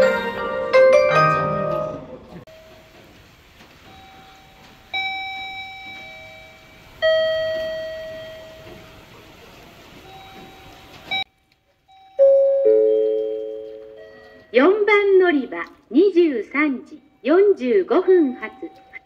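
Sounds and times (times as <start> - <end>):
bell-like public-address chime: 3.8 - 9.2, 10.1 - 11.3, 11.9 - 14.7, 16.9 - 19.0.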